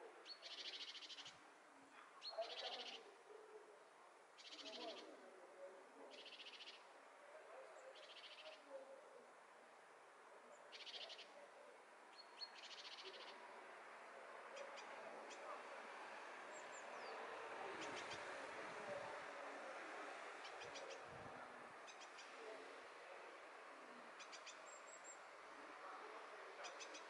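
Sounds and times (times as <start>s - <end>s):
outdoor background hush: 0.0s - 27.0s
songbird trilling: 0.3s - 1.3s, 6.1s - 6.8s, 10.7s - 11.3s, 12.2s - 13.4s.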